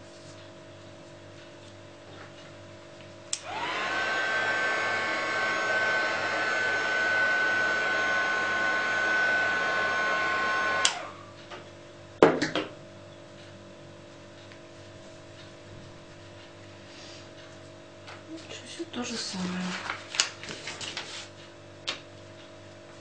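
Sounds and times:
heat gun fan whining: 0:03.2 - 0:11.8
heat gun switch click: 0:03.3 - 0:03.5, 0:10.7 - 0:11.0.

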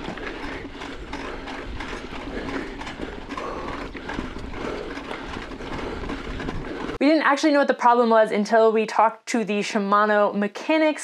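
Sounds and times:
bike rattle on dirt trail: 0:00.0 - 0:07.0.

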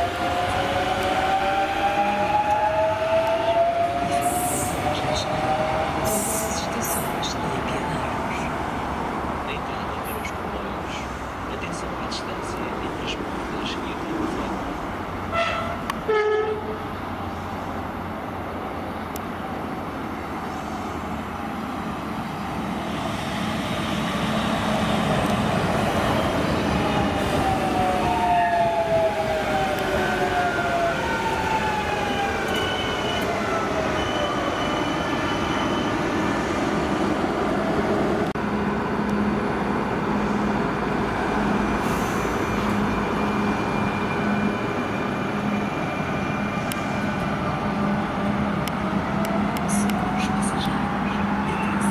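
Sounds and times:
falling whines of train: 0:00.0 - 0:07.2, 0:14.1 - 0:51.9
pulsing hum of train equipment: 0:00.0 - 0:51.9
train wheels rumbling on rail: 0:00.0 - 0:51.9
train horn blast: 0:15.3 - 0:16.8.

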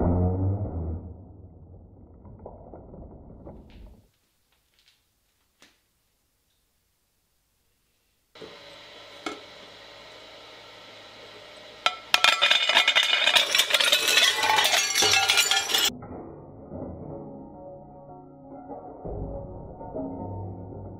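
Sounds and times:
shredder humming: 0:08.4 - 0:15.9
ceramic plate cracking and breaking: 0:11.9 - 0:15.9.

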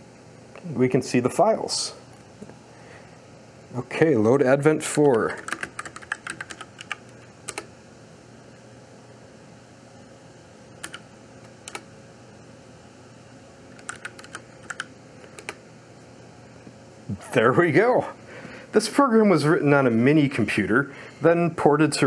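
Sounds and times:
faint steady hum: 0:00.0 - 0:22.0
computer keyboard keystrokes: 0:05.0 - 0:07.7, 0:10.8 - 0:11.9, 0:13.7 - 0:15.6.

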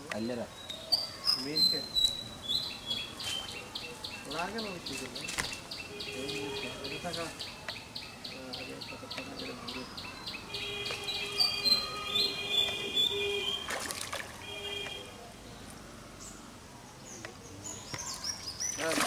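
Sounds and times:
birds chirping: 0:00.0 - 0:19.0
high whistled bird notes: 0:10.0 - 0:15.1.

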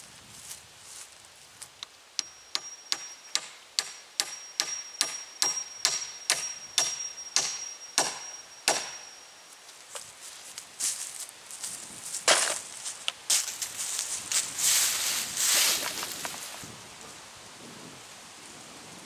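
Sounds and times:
hammer striking nail into wood: 0:02.2 - 0:09.1.

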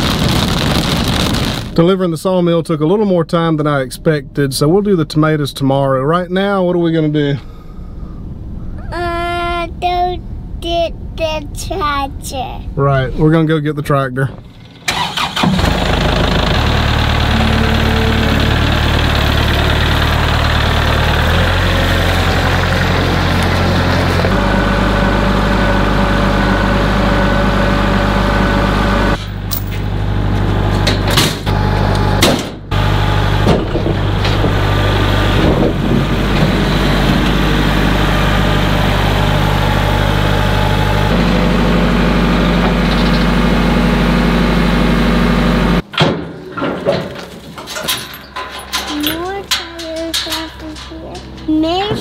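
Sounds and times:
tractor diesel engine running: 0:14.0 - 0:52.0
metal ramps clanking and rattling: 0:33.4 - 0:34.7, 0:42.5 - 0:43.5, 0:45.8 - 0:52.0.

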